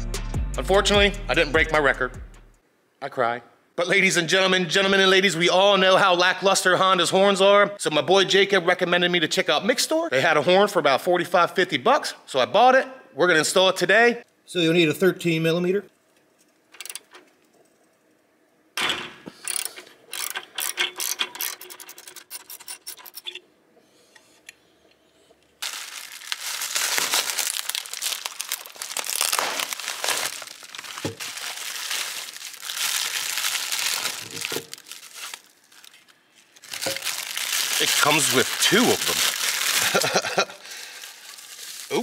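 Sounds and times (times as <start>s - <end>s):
ratchet wrench clicking: 19.4s - 23.3s
bubble wrap crinkling: 25.6s - 42.0s
plastic bag tearing open: 25.6s - 42.0s.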